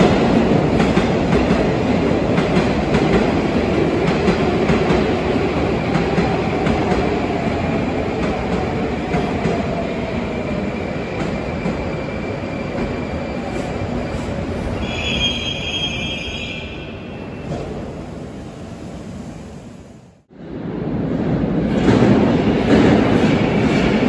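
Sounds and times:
train rumbling and braking: 0.0 - 24.0
short high brake squeal: 14.8 - 16.8.

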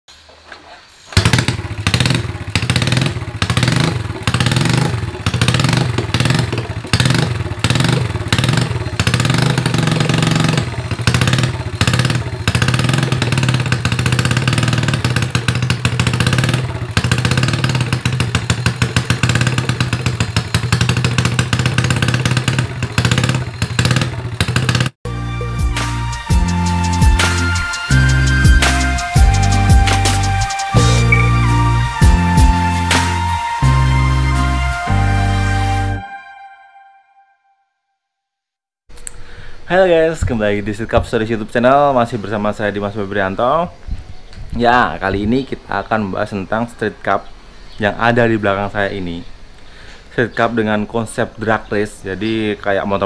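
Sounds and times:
motorcycle engine revving: 1.1 - 25.1, 26.0 - 36.0.

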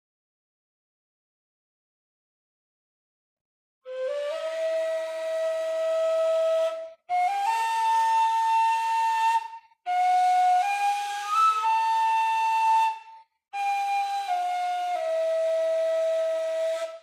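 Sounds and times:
breathy reed flute melody: 3.9 - 17.0.

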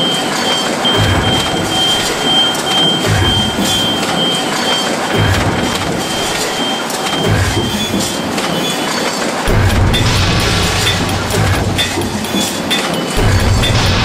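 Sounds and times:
thin high whine: 0.0 - 8.6
factory machine noise: 0.0 - 14.0.

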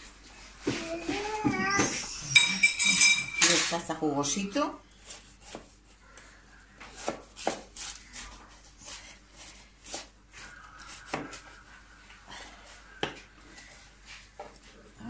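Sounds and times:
knife sawing through pastry: 6.9 - 11.6.

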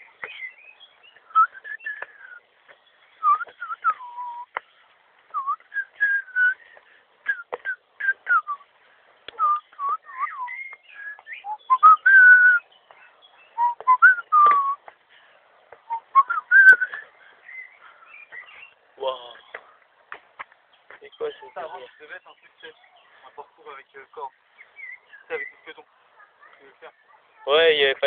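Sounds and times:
person whistling: 1.3 - 2.4, 3.2 - 4.5, 5.3 - 6.6, 7.3 - 8.6, 9.4 - 12.6, 13.6 - 14.8, 15.9 - 17.1.

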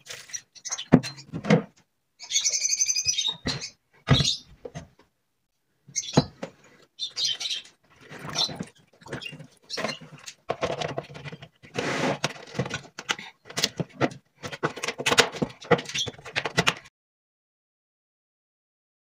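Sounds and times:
plastic box scrapes and clicks: 8.0 - 16.9.

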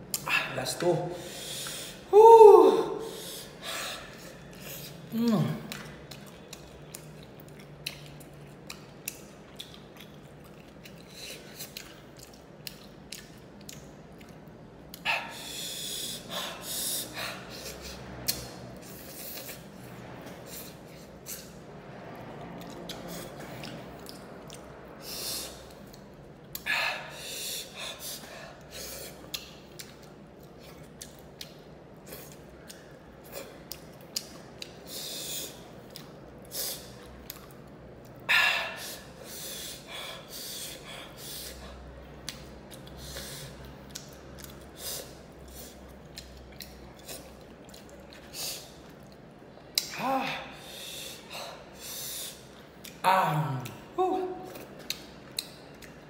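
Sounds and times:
sharp hissing breaths: 1.2 - 2.1, 3.0 - 4.9, 15.1 - 18.0, 25.0 - 25.6, 26.6 - 29.2, 34.8 - 35.6, 38.3 - 41.8, 43.0 - 43.6, 50.4 - 52.6
small mouth clicks: 17.6 - 19.6
wet lip smacks and sucking: 17.6 - 21.6.

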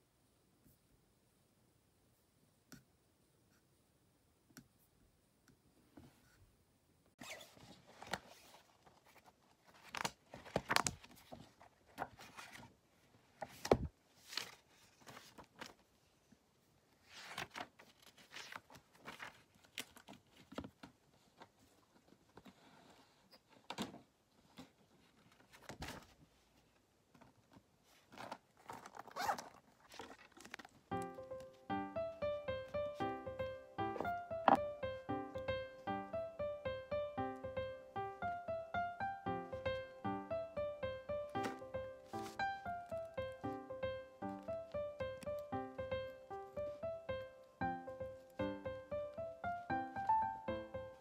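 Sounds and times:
notebook pages turning: 7.2 - 12.8, 13.4 - 15.8, 17.0 - 22.5, 25.3 - 26.2, 28.0 - 31.6, 41.4 - 43.6.

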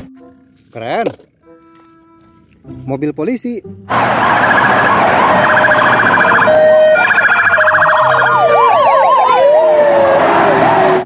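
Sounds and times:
wailing siren: 3.9 - 11.0
warbling sirens: 3.9 - 11.0.

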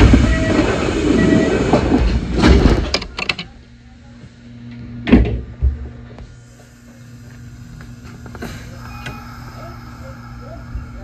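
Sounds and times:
stopped train humming: 0.0 - 11.0
train doors closing thud: 5.0 - 5.8.

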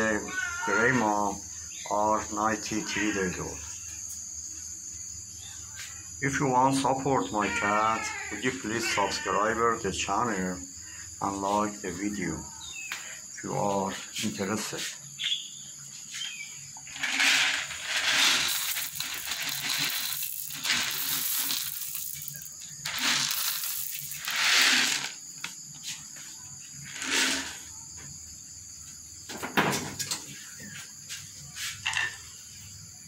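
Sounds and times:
dry kibble pouring onto tile floor: 16.9 - 25.5.

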